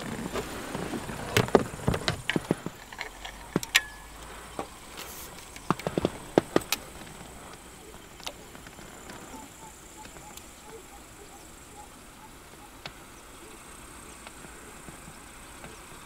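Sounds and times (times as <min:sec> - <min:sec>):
sharp clicks and knocks: 0:01.2 - 0:09.3.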